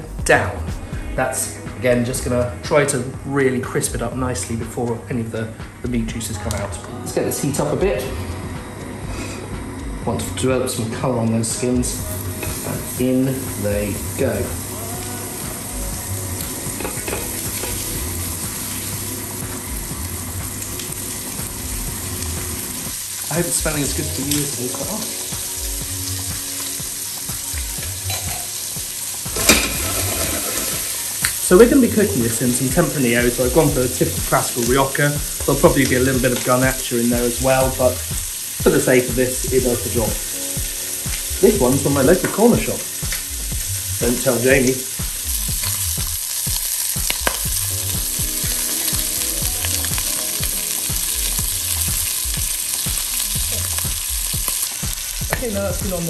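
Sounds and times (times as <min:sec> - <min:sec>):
chicken sizzling in a pot: 0:07.3 - 0:56.0
oil crackles and pop: 0:12.4 - 0:56.0.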